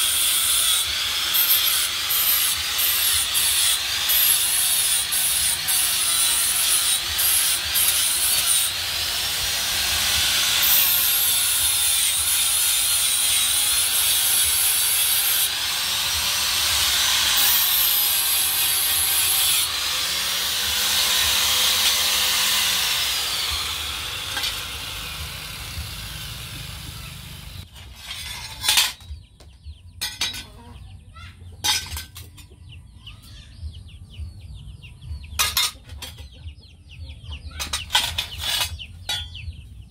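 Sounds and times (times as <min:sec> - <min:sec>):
angle grinder grinding steel: 0:00.0 - 0:29.1, 0:37.6 - 0:39.4
steel knives clinking: 0:37.6 - 0:39.5.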